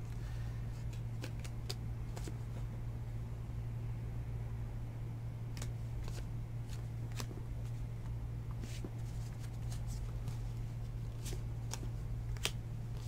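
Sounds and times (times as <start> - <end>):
steady low hum: 0.0 - 13.0
trading cards snapping: 0.8 - 2.4, 5.5 - 7.8, 11.1 - 13.0.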